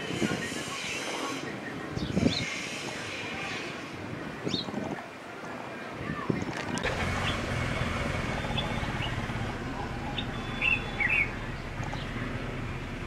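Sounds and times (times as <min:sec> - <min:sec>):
birds chirping: 0:06.2 - 0:13.0.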